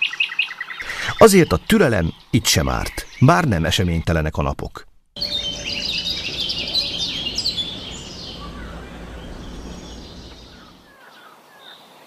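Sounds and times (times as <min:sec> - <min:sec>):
songbirds chirping and singing: 0:05.2 - 0:11.9.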